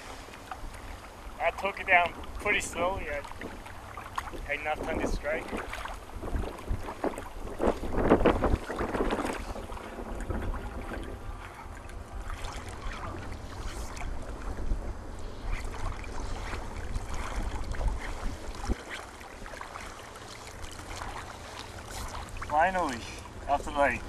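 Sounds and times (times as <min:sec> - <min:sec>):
small waves lapping: 0:00.0 - 0:24.0
wind rumbling on microphone: 0:00.0 - 0:24.0.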